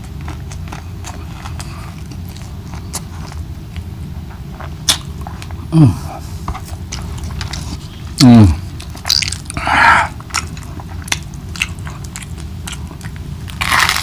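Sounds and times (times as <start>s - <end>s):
close-up chewing food: 0.0s - 14.0s
person humming: 5.7s - 6.3s, 8.2s - 8.6s.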